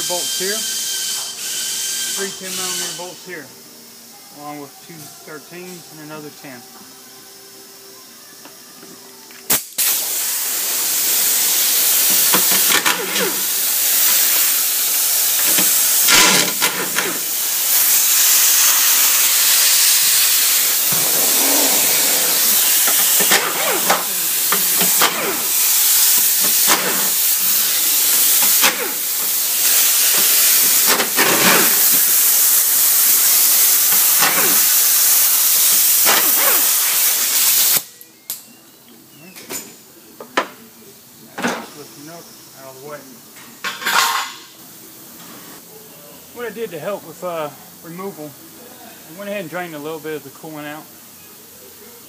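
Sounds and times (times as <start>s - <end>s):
compressed air hissing: 0.0s - 6.6s, 9.5s - 37.9s.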